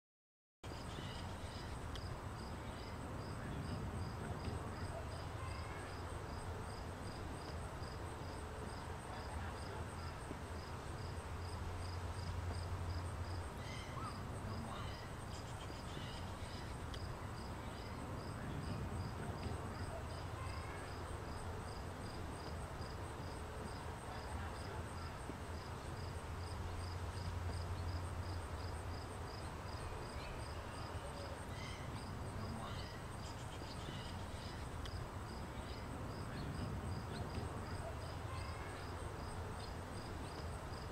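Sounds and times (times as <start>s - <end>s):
crickets chirping: 0.7s - 40.9s.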